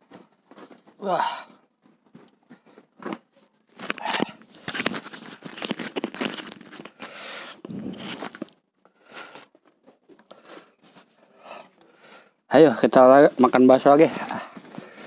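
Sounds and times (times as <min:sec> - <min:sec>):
lapel microphone handling noise: 0:01.8 - 0:08.6.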